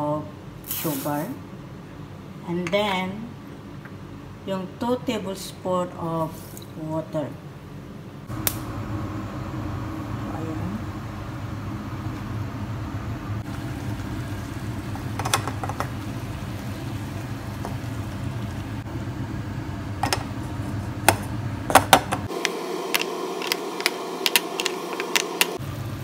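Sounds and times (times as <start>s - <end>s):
steady low hum: 1.4s - 26.0s
syrup boiling in a pot: 13.4s - 18.9s.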